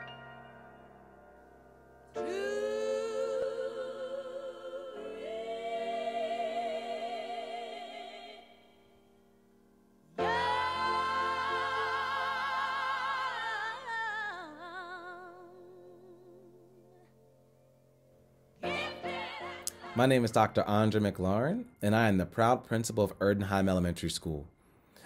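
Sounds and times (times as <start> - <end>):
choir singing held notes: 2.2 - 8.7, 10.2 - 15.6, 18.6 - 21.0.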